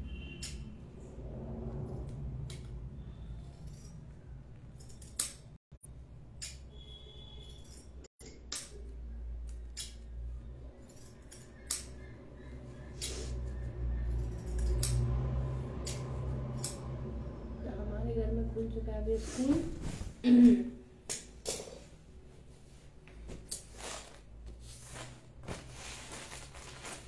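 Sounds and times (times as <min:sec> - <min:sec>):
low rumble: 0:00.8 - 0:03.2.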